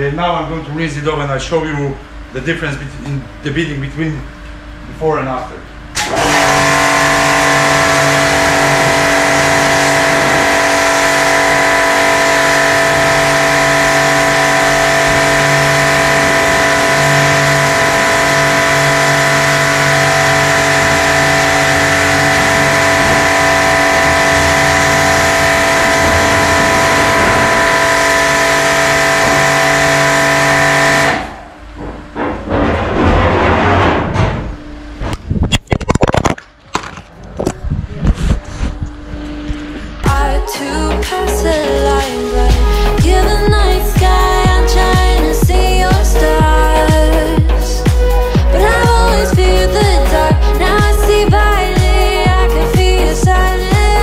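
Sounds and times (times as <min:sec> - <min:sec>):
pressure washer motor hum: 0:05.7 - 0:32.3.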